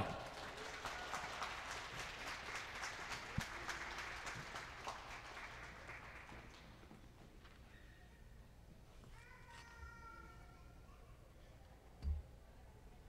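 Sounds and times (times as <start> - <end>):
sparse applause from small crowd: 0.0 - 6.8.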